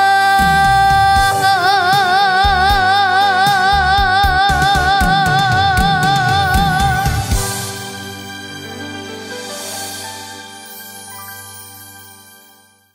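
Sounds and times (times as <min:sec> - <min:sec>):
girl singing long note with vibrato: 0:00.0 - 0:07.9
band playing: 0:00.0 - 0:11.6
drum hits: 0:04.5 - 0:08.2.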